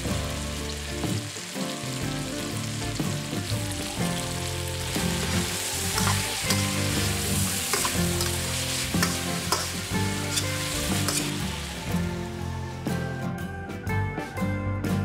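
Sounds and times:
chicken sizzling in a frying pan: 0:00.0 - 0:13.0
metal spatula scraping pan: 0:05.2 - 0:11.9.

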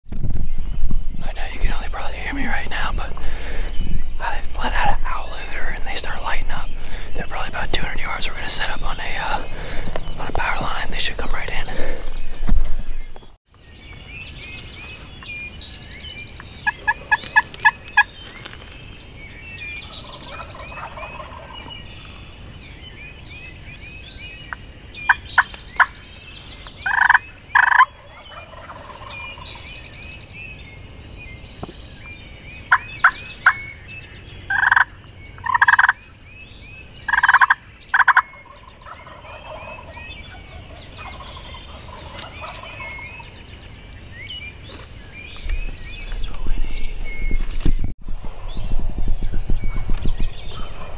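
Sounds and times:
birds chirping: 0:00.4 - 0:50.9
turkeys gobbling: 0:16.6 - 0:18.1, 0:19.8 - 0:21.8, 0:26.8 - 0:29.6, 0:34.5 - 0:36.0, 0:37.1 - 0:43.3.

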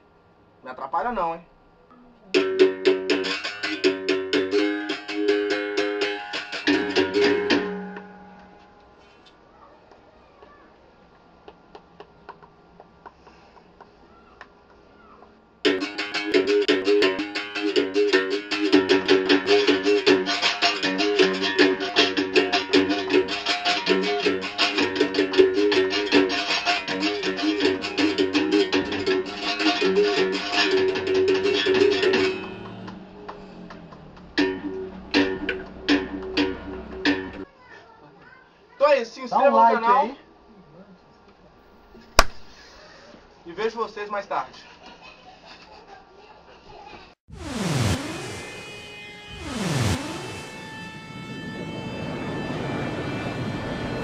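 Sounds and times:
berimbaus playing: 0:02.3 - 0:08.6, 0:15.7 - 0:37.4, 0:47.3 - 0:54.0
twangy berimbau strikes: 0:27.8 - 0:37.4, 0:42.1 - 0:42.6.

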